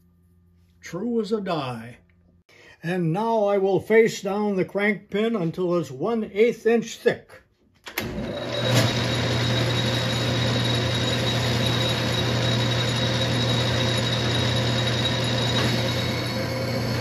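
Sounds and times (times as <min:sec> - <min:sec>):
metal lathe humming: 0:08.0 - 0:17.0.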